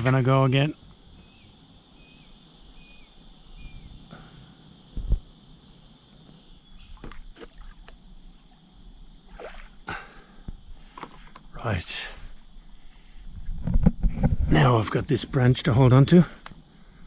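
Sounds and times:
birds chirping: 0.0s - 4.1s
insects droning: 0.0s - 17.0s
dull thump: 4.9s - 5.2s.

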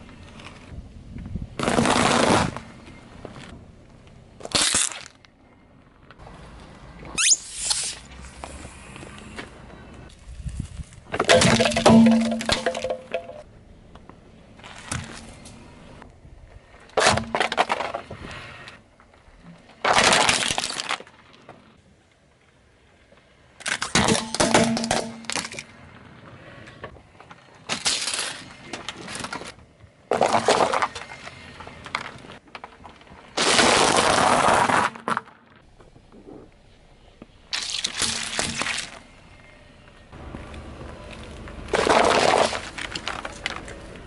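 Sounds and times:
tyre crushing objects: 33.3s - 35.4s, 41.7s - 43.8s.

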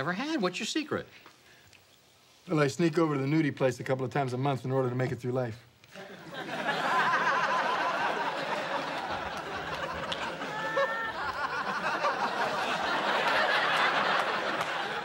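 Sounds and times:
studio audience laughing: 5.9s - 15.0s.

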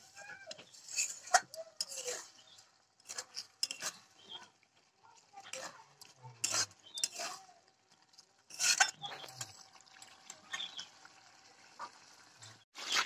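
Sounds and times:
spatula scraping a metal wok: 0.0s - 4.5s, 5.4s - 9.6s, 12.5s - 13.0s.

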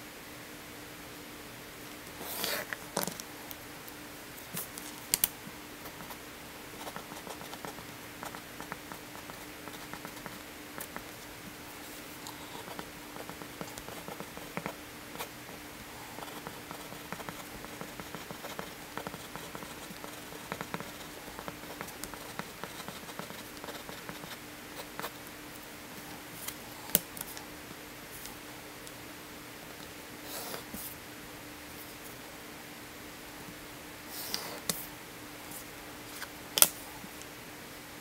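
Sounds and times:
faint steady hum: 0.0s - 38.0s
pencil scratching on paper: 2.2s - 2.7s, 6.8s - 11.1s, 12.3s - 15.3s, 16.1s - 25.1s.

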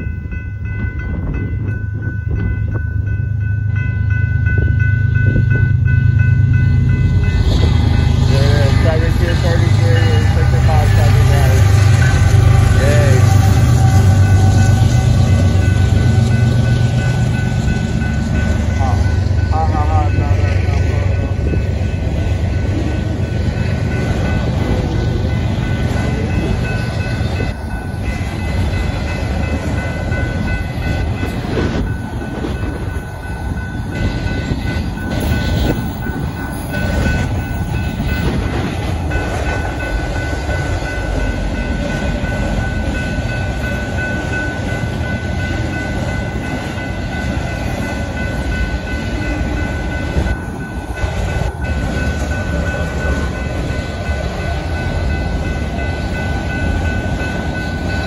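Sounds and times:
high ringing tone: 0.0s - 9.3s
train wheels rumbling on rails: 0.0s - 58.0s.

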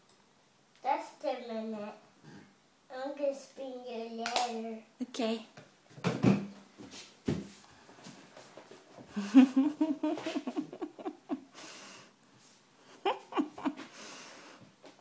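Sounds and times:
woman laughing: 9.1s - 11.6s, 12.9s - 13.9s.

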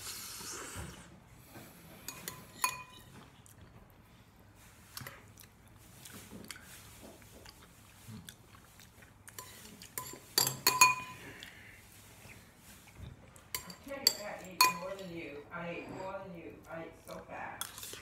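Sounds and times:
utensil clinking on a bowl: 2.0s - 3.2s, 9.3s - 11.6s, 13.5s - 16.2s
chewing: 4.6s - 10.4s, 17.0s - 18.0s.

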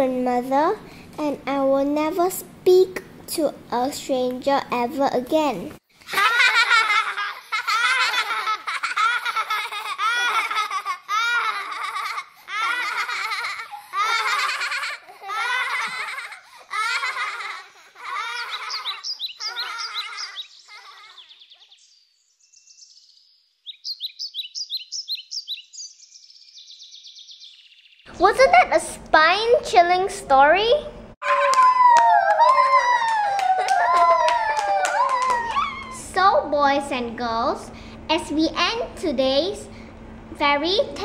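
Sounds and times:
high-pitched cartoon laughter: 6.0s - 21.7s, 31.2s - 36.0s
birds chirping: 17.7s - 28.1s.

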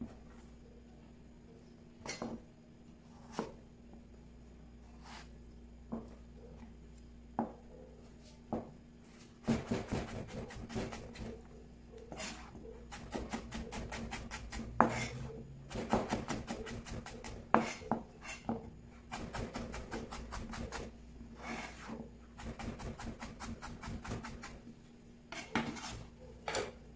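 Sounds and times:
knife chopping on cutting board: 3.2s - 3.6s, 9.4s - 11.3s, 12.1s - 20.9s, 21.5s - 24.6s.

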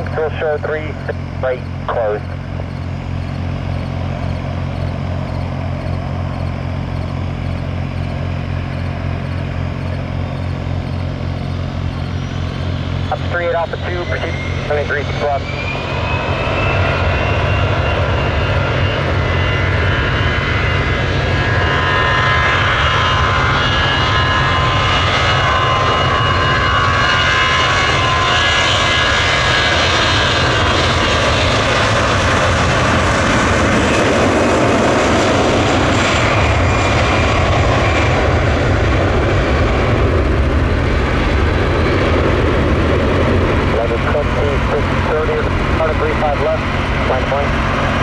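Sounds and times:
jet engines running: 0.0s - 48.0s.

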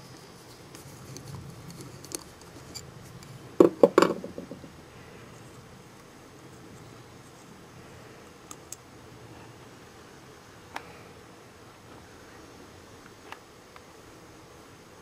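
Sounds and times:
sharp knocks: 3.6s - 4.7s.

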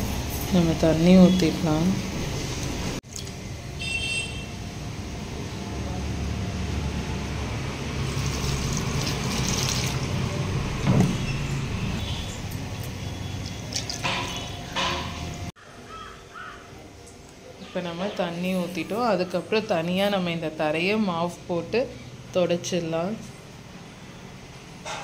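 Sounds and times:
water splashing onto soil: 8.0s - 10.2s.

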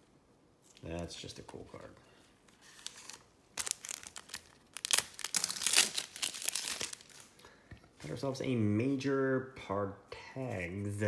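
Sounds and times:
trading cards rustling: 2.5s - 7.3s.

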